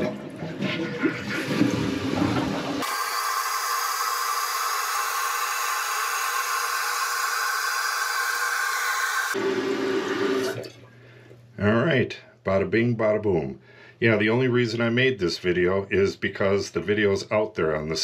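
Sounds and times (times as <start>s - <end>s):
toilet flushing water rush: 0.0s - 10.9s
toilet tank refill hissing: 0.6s - 10.8s.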